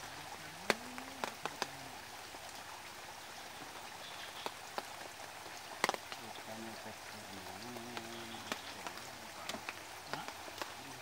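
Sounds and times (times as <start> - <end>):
steady hiss like light rain: 0.0 - 11.0.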